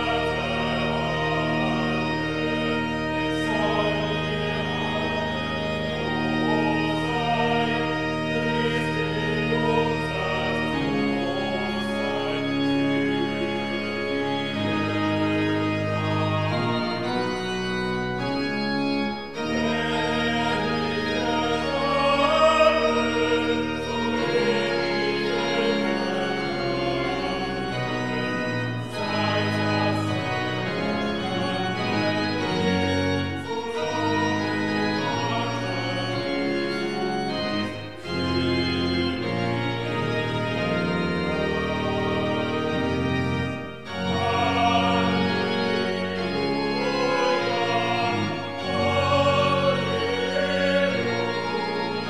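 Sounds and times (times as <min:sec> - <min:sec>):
small group singing: 0:00.0 - 0:02.0, 0:03.4 - 0:05.3, 0:06.0 - 0:12.5, 0:19.6 - 0:28.2, 0:28.8 - 0:32.6, 0:33.4 - 0:36.2, 0:44.0 - 0:52.0
pipe organ playing chords: 0:00.0 - 0:52.0.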